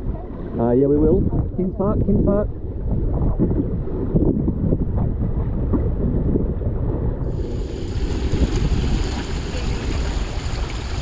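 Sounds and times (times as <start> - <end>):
wind buffeting microphone: 0.0 - 11.0
bright hiss of water: 7.3 - 11.0
water rushing along hull: 7.3 - 11.0.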